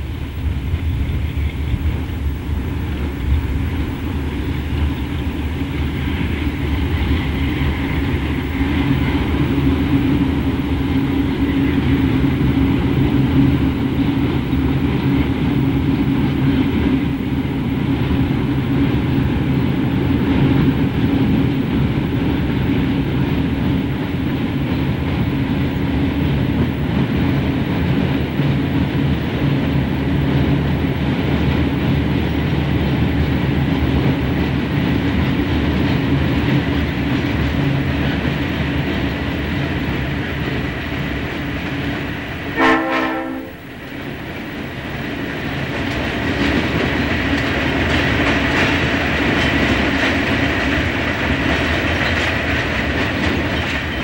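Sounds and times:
diesel locomotive engine drone: 0:00.0 - 0:54.0
train wheels rumbling on rails: 0:00.0 - 0:54.0.

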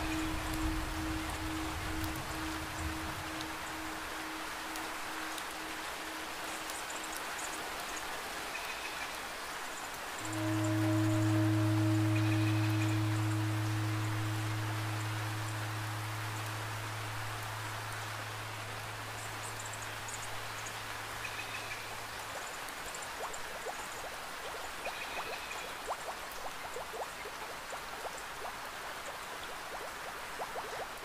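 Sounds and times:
low steady hum: 0:00.0 - 0:08.3, 0:10.2 - 0:22.4
raindrops plinking: 0:00.0 - 0:31.0
steady rain: 0:00.0 - 0:31.0.

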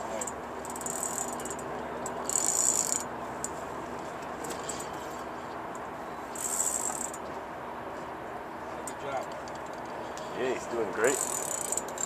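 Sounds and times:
fishing reel buzzing clicks: 0:11.1 - 0:12.0.

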